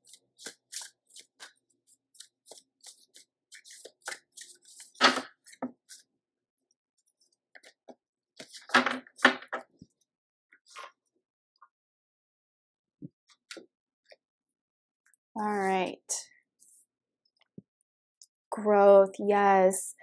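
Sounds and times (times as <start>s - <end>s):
cards being shuffled: 0.1s - 1.6s, 2.2s - 6.0s, 8.4s - 9.3s.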